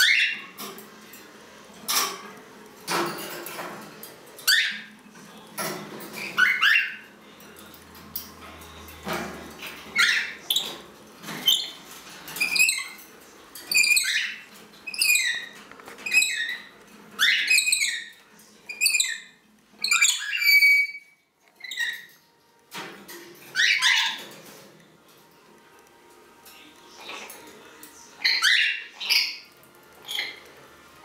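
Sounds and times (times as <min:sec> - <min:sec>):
lorikeet calling: 0:28.2 - 0:29.5.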